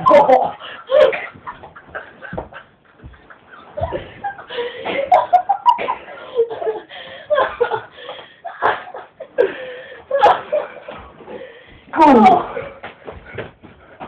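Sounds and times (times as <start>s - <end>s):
people laughing: 0.0s - 11.1s.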